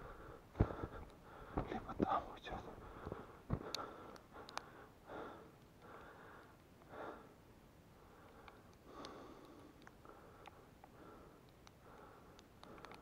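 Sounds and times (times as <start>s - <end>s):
faint ticks: 3.0s - 4.8s, 8.2s - 13.0s.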